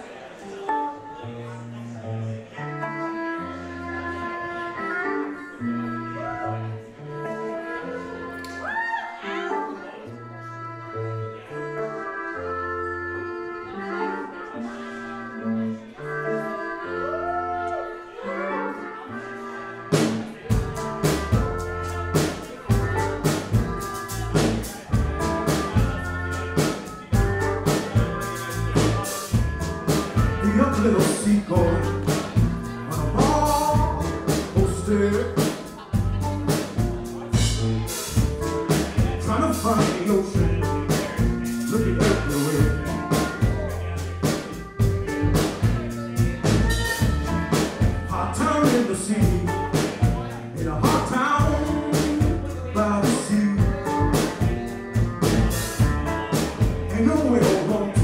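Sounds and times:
bass: 0:00.0 - 0:58.0
trombone: 0:18.2 - 0:58.0
drums: 0:19.9 - 0:58.0.

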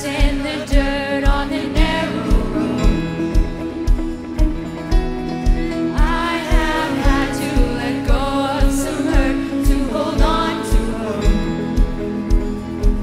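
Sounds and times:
woman singing into a microphone: 0:00.0 - 0:03.4, 0:05.9 - 0:12.1
acoustic guitar: 0:00.0 - 0:13.0
bass guitar: 0:00.0 - 0:13.0
steady low beat: 0:00.0 - 0:13.0.

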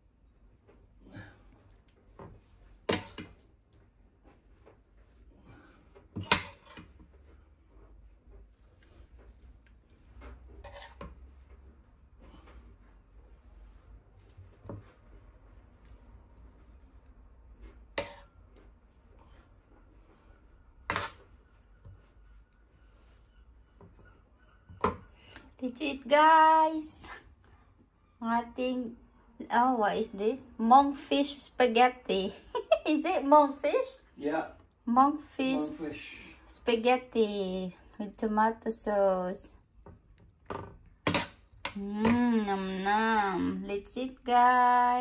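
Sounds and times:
soft knocks and scrapes: 0:04.2 - 0:18.8.

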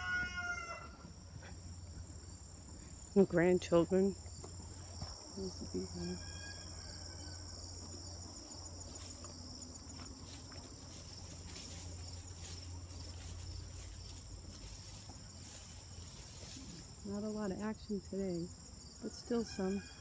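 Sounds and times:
insects trilling: 0:00.0 - 0:20.0.

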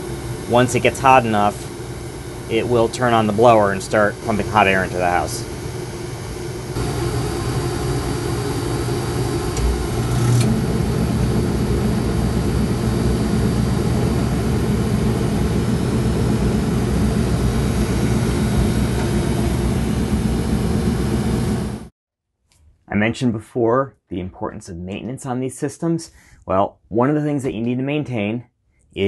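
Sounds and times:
blower motor chattering: 0:00.0 - 0:21.8
oil burner running: 0:00.0 - 0:21.9.

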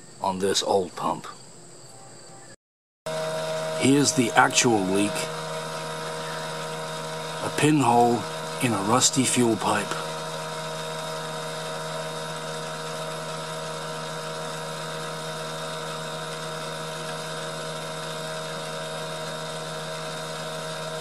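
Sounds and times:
electric fuel pump whining: 0:01.8 - 0:21.0
fuel spraying hiss: 0:03.1 - 0:17.8.

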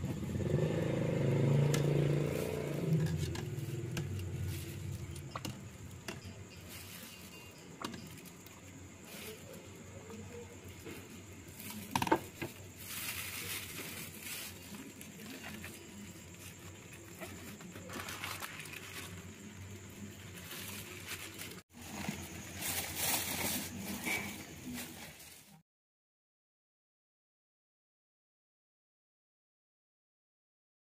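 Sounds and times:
plastic bag crinkling: 0:06.7 - 0:25.6.

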